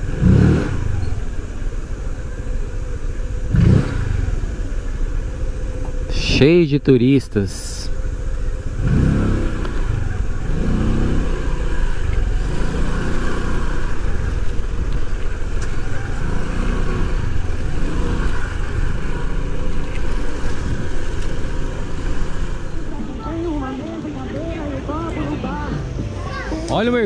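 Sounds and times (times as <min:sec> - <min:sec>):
motorbike engine: 0:00.0 - 0:25.0
road noise: 0:00.0 - 0:27.0
wind rumbling on microphone: 0:08.8 - 0:25.2.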